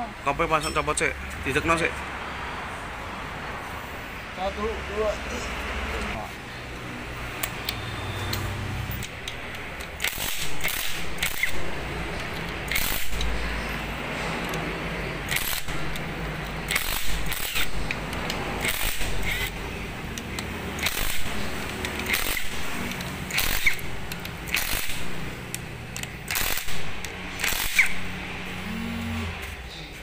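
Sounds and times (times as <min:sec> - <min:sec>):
cordless power driver spurts: 0:20.8 - 0:25.0, 0:26.3 - 0:28.0.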